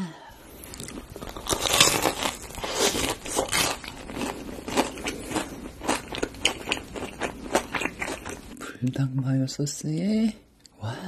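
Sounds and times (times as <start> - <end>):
crunchy chewing: 0.6 - 8.6.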